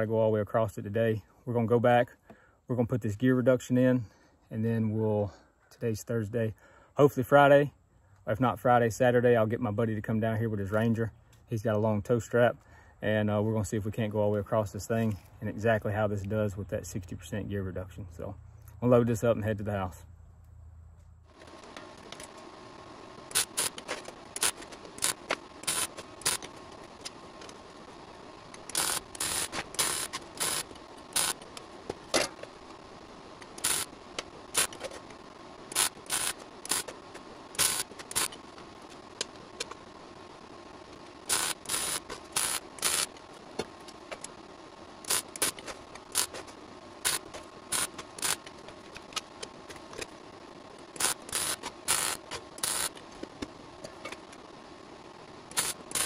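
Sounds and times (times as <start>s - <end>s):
workshop hum: 20.4s - 56.0s
arc welding crackle: 21.2s - 56.0s.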